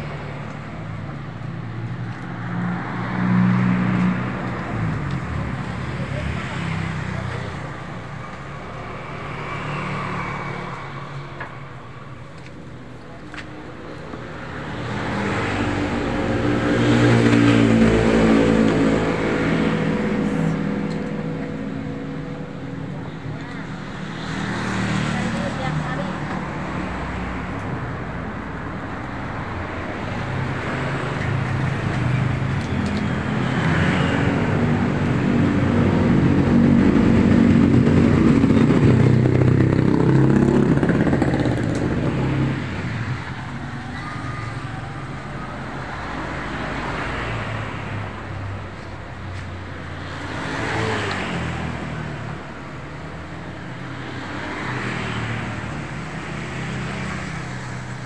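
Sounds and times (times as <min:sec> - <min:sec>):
heavy vehicle passing: 0:14.6 - 0:58.0.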